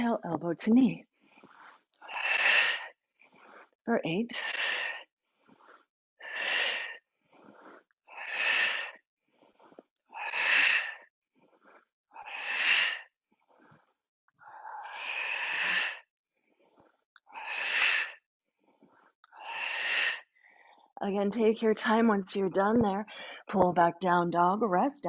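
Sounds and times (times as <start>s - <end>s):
forceful breathing exhales: 14.6s - 16.1s.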